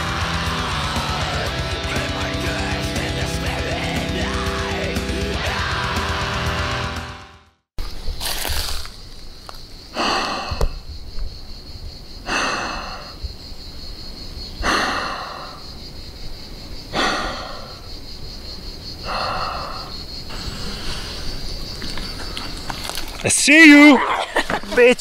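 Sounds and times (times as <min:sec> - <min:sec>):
person breathing close to microphone: 0:09.9 - 0:10.8, 0:12.2 - 0:13.2, 0:14.6 - 0:15.7, 0:16.9 - 0:17.9, 0:19.0 - 0:21.8.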